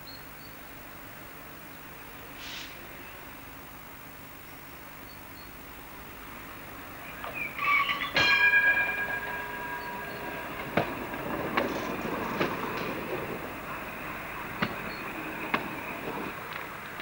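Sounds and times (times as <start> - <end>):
tram wheels rumbling on rails: 5.7 - 17.0
wheels clicking over rail joints: 6.9 - 17.0
metallic ringing tone: 7.1 - 16.4.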